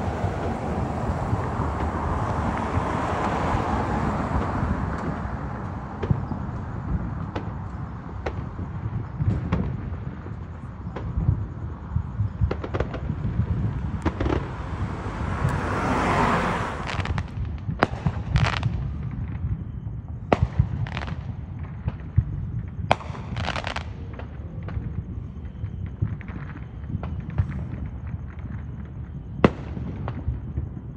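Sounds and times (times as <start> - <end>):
fireworks hissing crackle: 0.0 - 3.3, 16.8 - 19.5
fireworks bangs and pops: 0.0 - 30.9.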